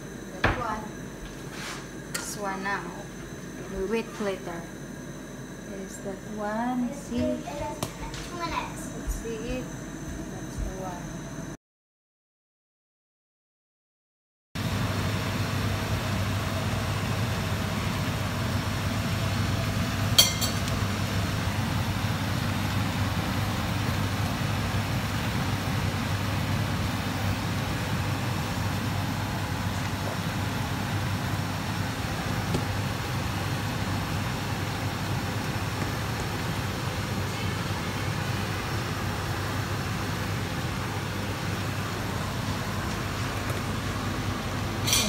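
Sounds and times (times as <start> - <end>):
gas burners humming and hissing: 0.0 - 11.6, 14.6 - 45.0.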